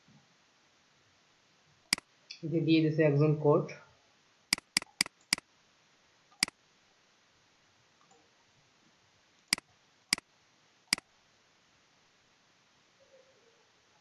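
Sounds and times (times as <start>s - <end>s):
computer mouse clicks: 4.5s - 5.4s.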